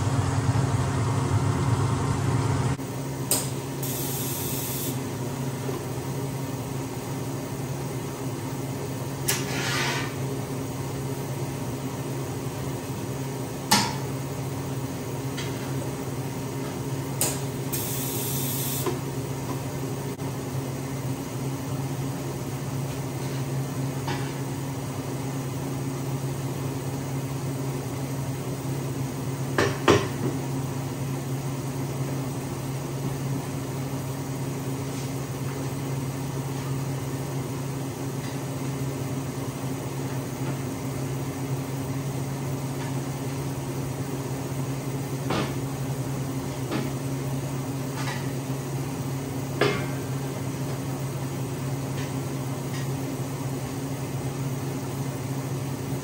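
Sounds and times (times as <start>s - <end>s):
electrical hum: 0.0s - 9.2s, 10.4s - 22.8s.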